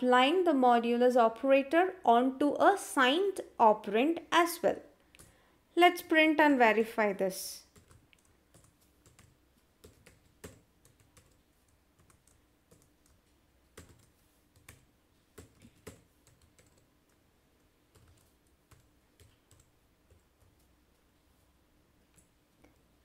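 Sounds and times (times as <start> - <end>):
faint typing on a keyboard: 5.0 - 5.5, 7.6 - 21.1, 22.0 - 23.0.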